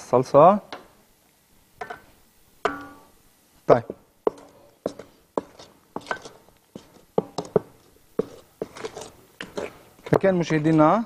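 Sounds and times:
wooden spoon knocking on bowls: 0:01.8 - 0:03.1, 0:03.8 - 0:10.8.

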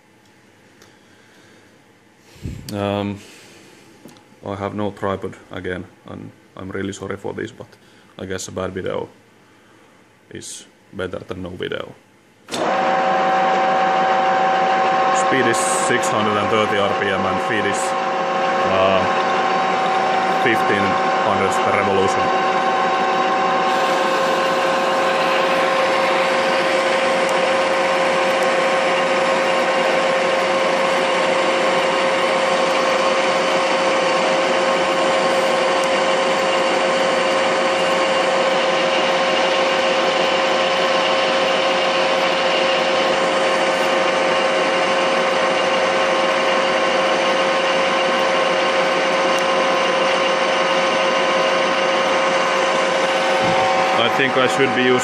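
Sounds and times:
metal lathe cutting steel: 0:12.6 - 0:55.0.

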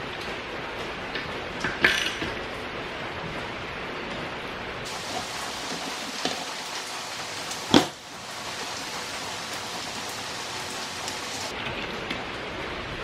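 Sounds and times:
steady hiss: 0:04.8 - 0:11.5.

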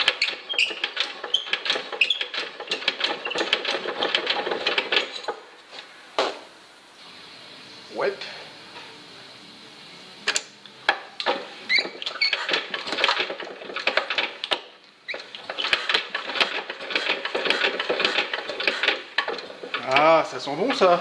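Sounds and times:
engine clattering being cranked: 0:00.0 - 0:05.5, 0:11.2 - 0:21.0.

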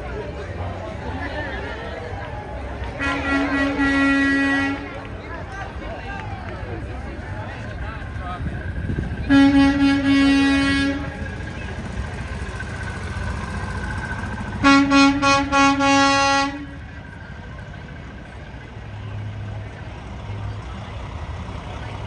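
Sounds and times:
vehicle air horn blasts: 0:03.0 - 0:05.0, 0:09.3 - 0:11.2, 0:14.6 - 0:16.8.

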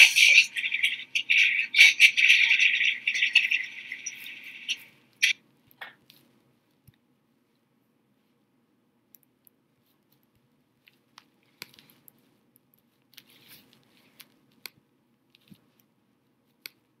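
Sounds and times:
soft rustle: 0:09.7 - 0:17.0.

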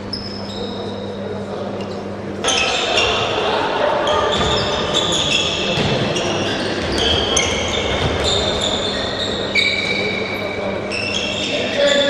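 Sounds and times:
sports shoes squeaking: 0:00.0 - 0:01.2, 0:04.0 - 0:12.0
balls bouncing on hall floor: 0:04.1 - 0:10.4.

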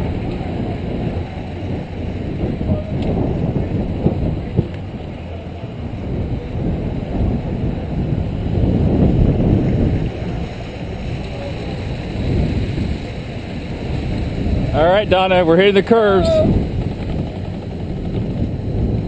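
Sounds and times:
wind buffeting microphone: 0:00.0 - 0:19.0
sled car rolling on steel rails: 0:15.8 - 0:19.0.

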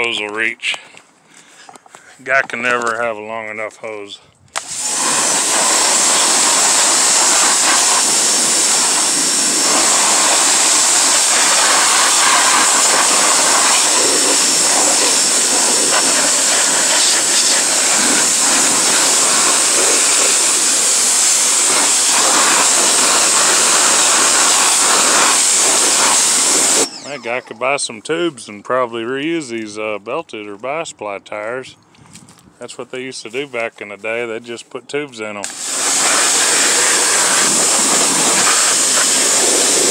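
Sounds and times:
pressure washer spraying: 0:04.6 - 0:27.4, 0:35.4 - 0:39.9.

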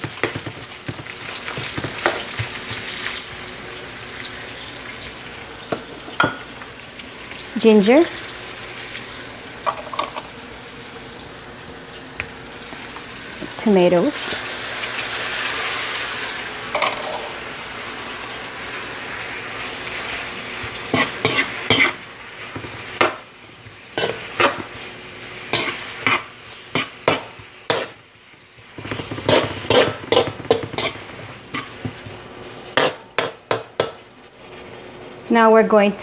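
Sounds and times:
vegetables sizzling in hot oil: 0:00.0 - 0:36.0
metal spatula scraping a wok: 0:20.9 - 0:22.0, 0:24.0 - 0:24.6, 0:25.5 - 0:28.0, 0:28.8 - 0:31.8, 0:32.4 - 0:33.0.

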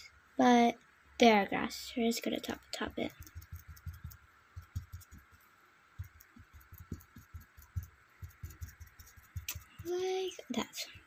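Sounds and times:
paintbrush tapping on paper: 0:03.1 - 0:05.4, 0:06.0 - 0:10.0.

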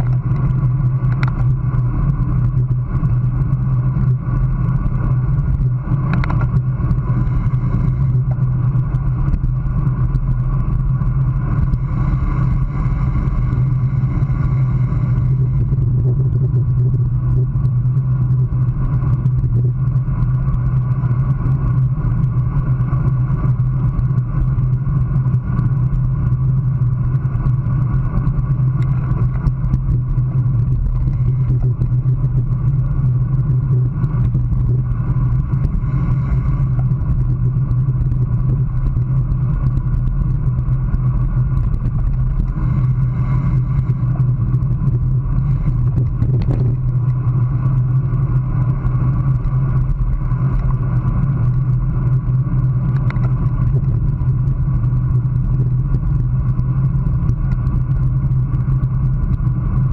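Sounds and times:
road rumble: 0:00.0 - 0:59.9.

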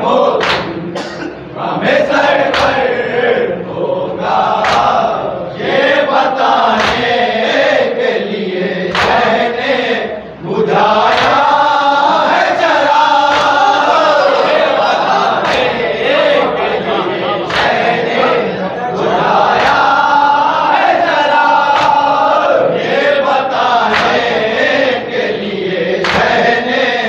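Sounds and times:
men chanting together: 0:00.0 - 0:27.0
chest-beating slaps: 0:00.4 - 0:00.8, 0:02.5 - 0:02.8, 0:04.6 - 0:05.1, 0:06.7 - 0:07.2, 0:08.9 - 0:09.3, 0:11.0 - 0:11.5, 0:13.2 - 0:13.9, 0:15.3 - 0:15.8, 0:17.5 - 0:18.0, 0:21.7 - 0:22.2, 0:23.9 - 0:24.4, 0:26.0 - 0:26.5.

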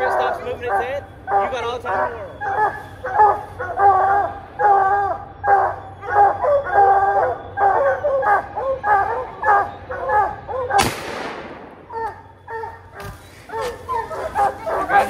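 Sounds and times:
hounds baying: 0:00.0 - 0:15.0
gunshot with echo: 0:10.8 - 0:11.9.

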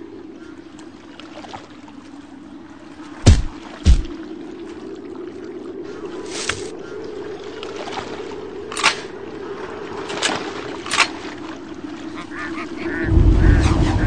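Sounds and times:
windy hiss: 0:11.6 - 0:14.0
ducks quacking: 0:12.0 - 0:14.0
deep rumble: 0:12.4 - 0:14.0.

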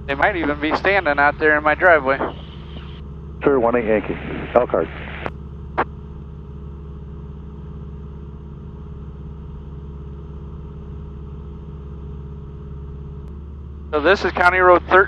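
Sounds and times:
propeller plane engine droning: 0:00.0 - 0:15.0
intercom click: 0:02.0 - 0:03.0.

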